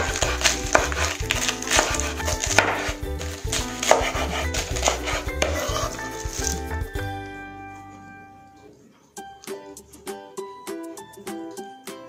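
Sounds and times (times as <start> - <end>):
knife chopping cabbage on board: 0.0 - 6.8
background music: 0.0 - 12.0.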